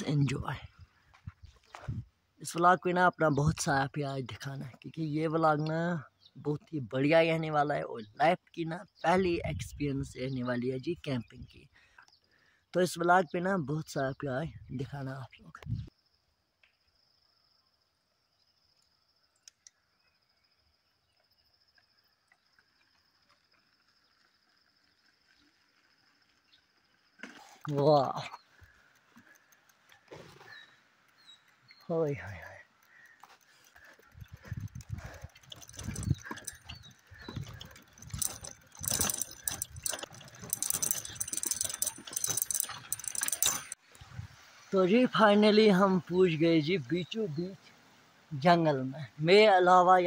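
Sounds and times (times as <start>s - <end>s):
small clicks: 18.7s - 20.0s, 27.2s - 43.8s
high-pitched insect trill: 34.0s - 43.8s.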